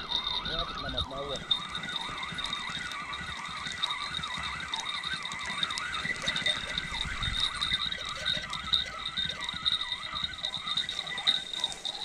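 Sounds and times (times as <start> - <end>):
frogs chorus: 0.0 - 12.0.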